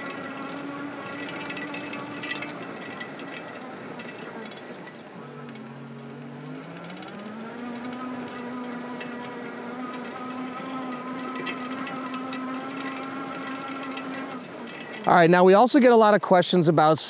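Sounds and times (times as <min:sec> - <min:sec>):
electric motor whining: 0:00.0 - 0:15.2.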